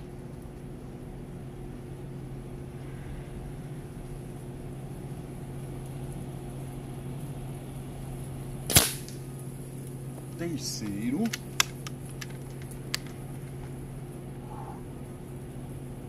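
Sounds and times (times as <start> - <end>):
low hum: 0.0 - 16.0
air rifle shot: 8.7 - 9.2.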